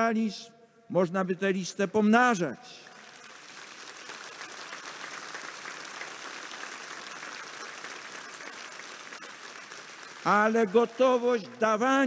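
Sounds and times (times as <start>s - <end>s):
crowd applauding: 2.8s - 11.4s.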